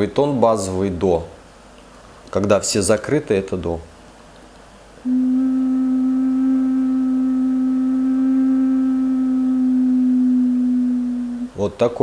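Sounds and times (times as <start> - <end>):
ocarina low steady tone: 5.0 - 11.6.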